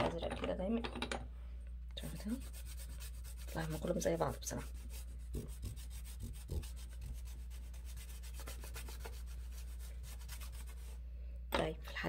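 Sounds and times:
chalk scraping on paper: 2.0 - 11.0.

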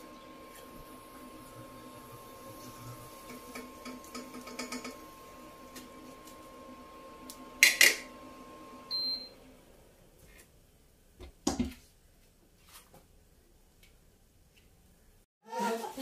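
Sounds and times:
appliance hum: 0.0 - 15.0
kitchen clatter: 3.3 - 5.0
short electronic beep: 8.9 - 9.4.

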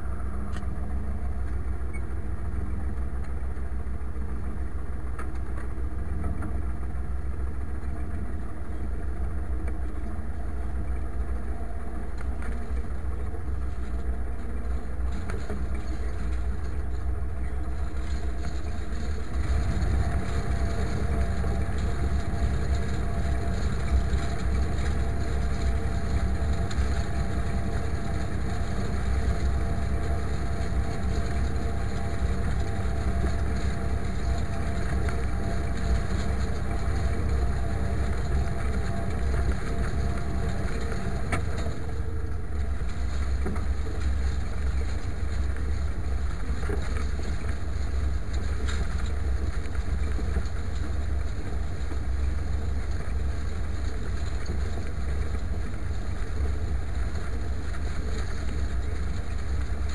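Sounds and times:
diesel tractor engine under load: 0.0 - 59.9.

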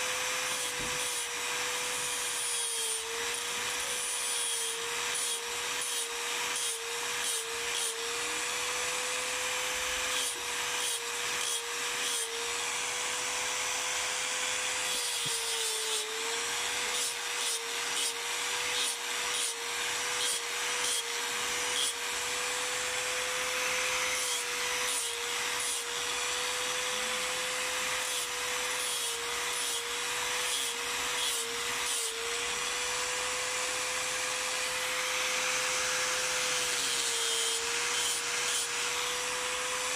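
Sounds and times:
angle grinder whining: 0.0 - 39.9.

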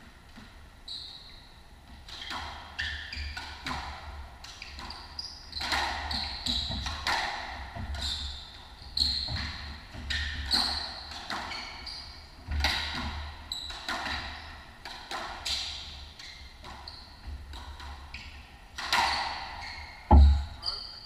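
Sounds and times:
shoes squeaking on floor: 0.8 - 3.7, 4.6 - 14.6, 15.4 - 21.0
ball thudding against walls: 20.1 - 20.6.

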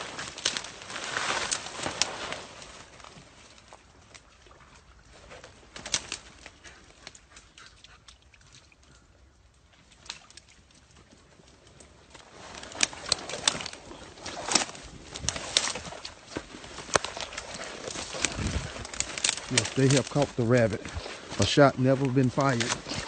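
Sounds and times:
footsteps through leaf litter: 0.0 - 4.2, 11.9 - 23.0
twigs snapping: 0.0 - 4.3, 5.4 - 7.7, 9.9 - 23.0
branches scraping: 0.0 - 7.6, 9.7 - 23.0.

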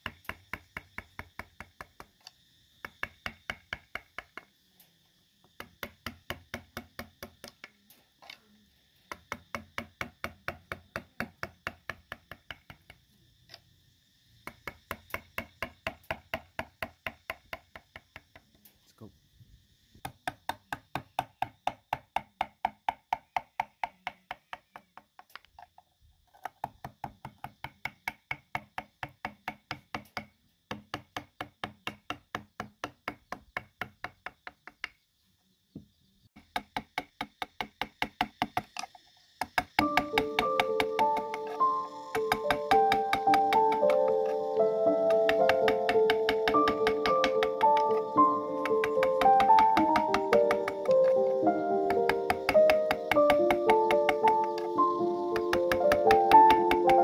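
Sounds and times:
chisel tapped into wood: 36.4 - 51.3, 51.9 - 54.7, 55.4 - 57.0.

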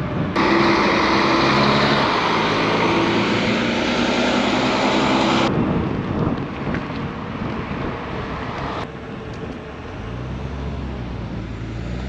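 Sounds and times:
rushing noise: 0.0 - 6.0
engine drone: 0.0 - 12.0.

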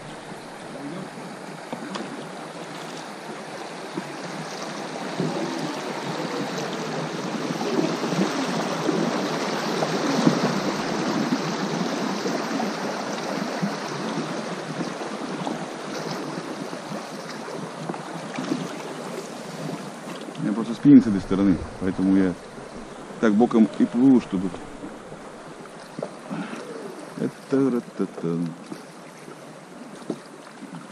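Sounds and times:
river rapids rushing and splashing: 0.0 - 30.9.

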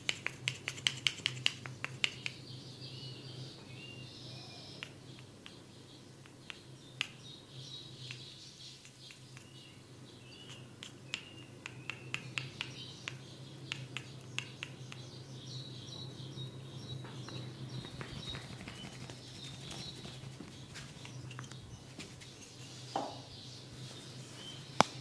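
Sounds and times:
sharp irregular clicks and taps: 0.0 - 2.4, 4.8 - 5.6, 6.2 - 7.3, 8.0 - 9.6, 10.4 - 15.2
birds chirping: 0.2 - 25.0.

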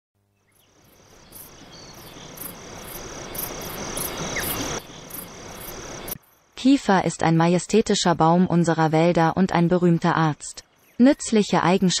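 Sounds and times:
hissing background noise: 0.3 - 12.0
crickets chirping: 0.4 - 7.6.

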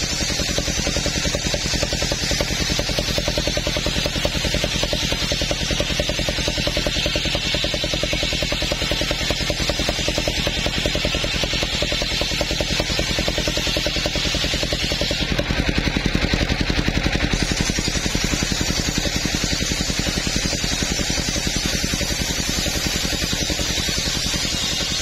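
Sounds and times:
saw blade hissing through wood: 0.0 - 25.0
saw engine pulsing: 0.0 - 25.0.

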